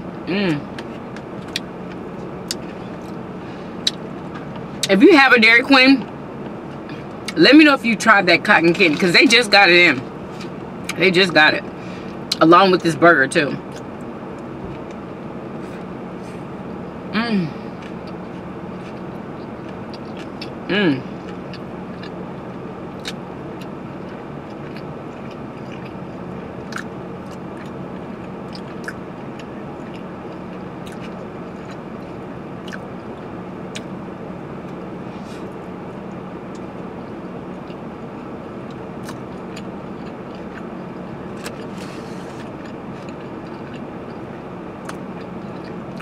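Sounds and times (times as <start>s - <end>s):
car air conditioning fan: 0.0s - 46.0s
chewing with mouth clicks: 17.8s - 20.6s, 23.0s - 33.9s, 38.6s - 46.0s.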